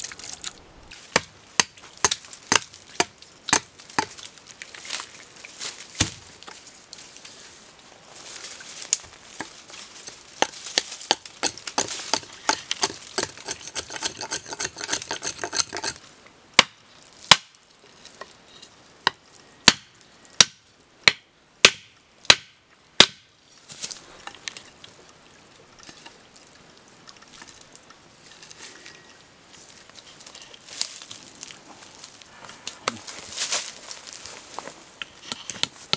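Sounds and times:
faint rustling and handling: 3.8s - 13.2s, 23.5s - 35.9s
knife chopping bamboo: 19.1s - 23.2s.

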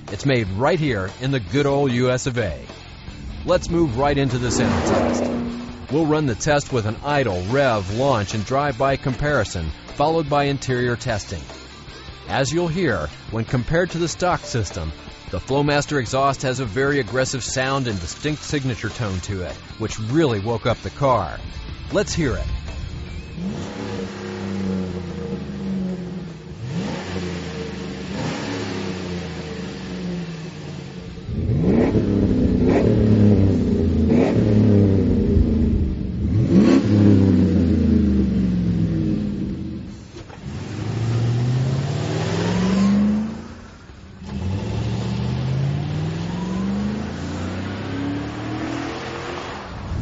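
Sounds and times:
truck accelerating: 0.0s - 20.0s, 21.4s - 50.0s
engine revving through exhaust: 2.7s - 6.4s, 23.2s - 50.0s.

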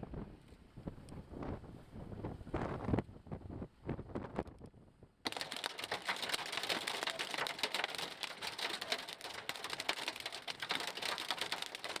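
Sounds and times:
hail clattering on car roof: 5.3s - 12.0s.

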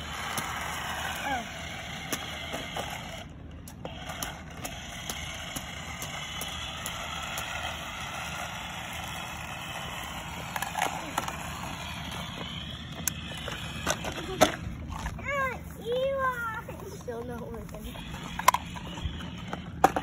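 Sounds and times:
outdoor background noise: 0.0s - 20.0s
plastic toy truck clicks: 18.2s - 20.0s.

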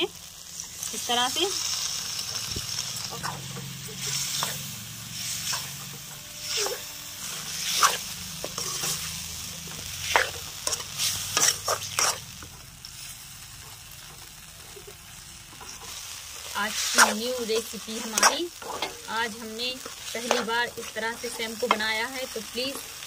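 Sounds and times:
curry sizzling in oil: 0.0s - 23.0s
steel spoon scraping metal pan: 3.1s - 9.2s, 10.0s - 12.3s, 16.7s - 21.8s.

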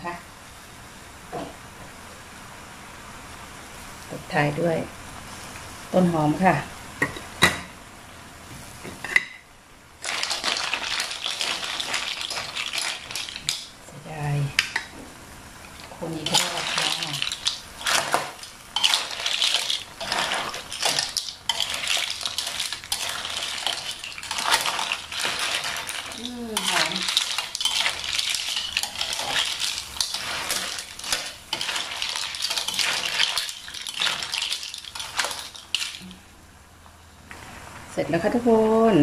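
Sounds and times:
mussel shells clattering: 10.0s - 13.7s, 16.2s - 36.1s
metal spatula scraping pan: 16.2s - 36.0s.

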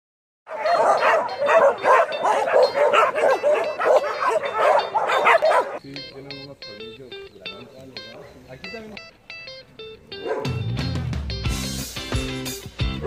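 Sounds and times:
many dogs barking and yipping: 0.5s - 5.8s, 8.1s - 8.5s, 10.1s - 10.6s.

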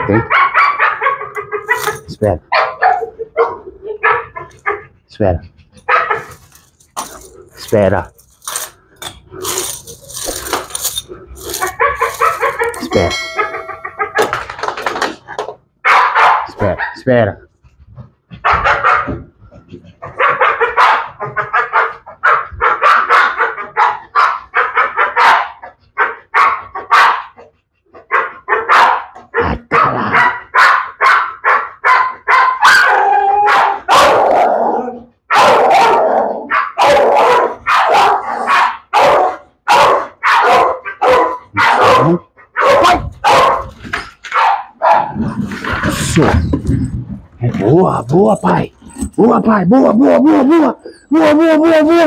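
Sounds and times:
dog barking: 0.1s - 4.9s, 5.8s - 6.4s, 11.5s - 14.4s, 15.8s - 17.0s, 18.4s - 19.3s, 20.0s - 45.3s.

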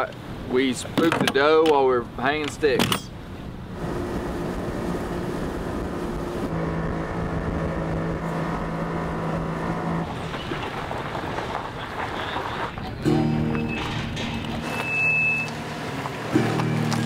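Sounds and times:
motorboat engine running: 3.7s - 10.5s.

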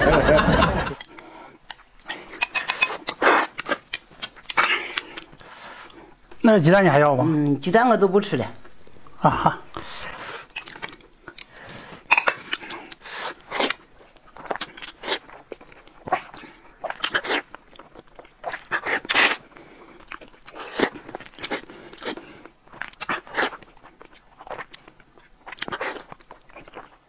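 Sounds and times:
eggs being cracked and peeled: 0.9s - 6.0s
chewing: 1.0s - 6.4s, 9.7s - 27.0s.

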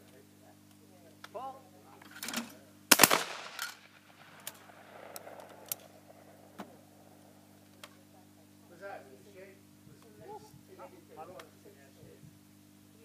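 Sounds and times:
shotgun shots with echo: 2.9s - 7.6s
faint clicks: 4.4s - 5.9s.

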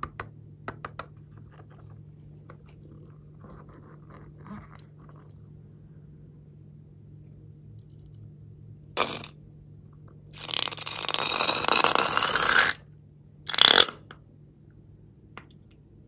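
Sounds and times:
slime squirting from balloon: 9.0s - 9.3s, 10.4s - 12.8s.

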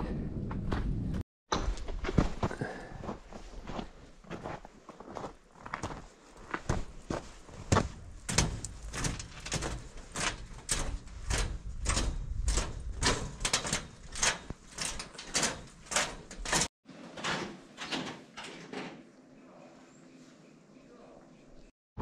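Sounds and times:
footsteps walking: 0.5s - 13.0s.

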